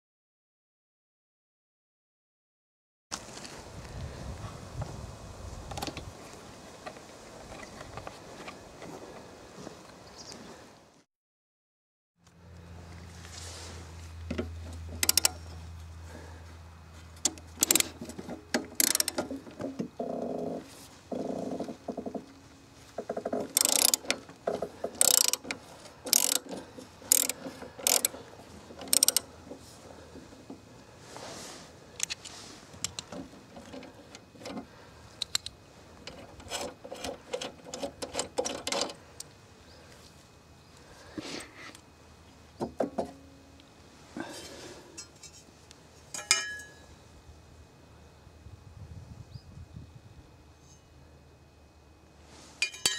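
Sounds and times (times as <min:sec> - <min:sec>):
ratchet wrench clicking: 0:15.0 - 0:15.5, 0:17.2 - 0:18.0, 0:18.6 - 0:19.3, 0:23.5 - 0:24.2, 0:24.9 - 0:28.2, 0:28.8 - 0:29.3.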